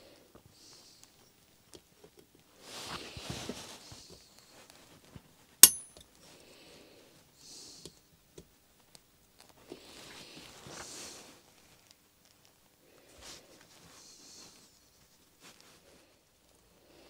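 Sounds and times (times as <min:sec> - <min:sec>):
sharp metallic clink: 0:05.6 - 0:06.0.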